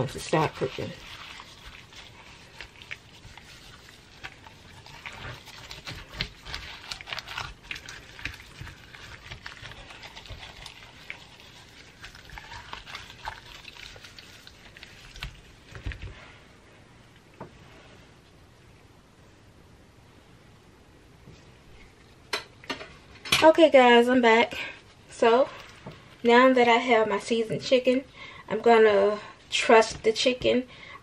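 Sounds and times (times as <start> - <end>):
gloved hand squelching raw chicken: 0.0 - 16.3.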